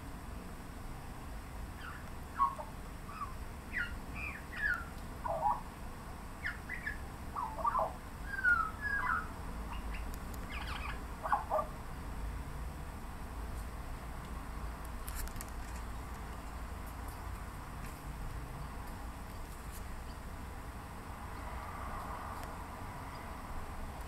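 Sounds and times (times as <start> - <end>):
magpie chirps and squawks: 1.8 - 5.6, 6.4 - 11.7.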